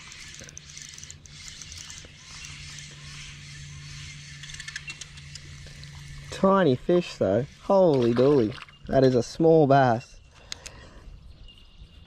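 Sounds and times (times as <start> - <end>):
light reel ticks: 0.0 - 7.8, 10.2 - 10.8
fishing reel winding: 0.0 - 7.9.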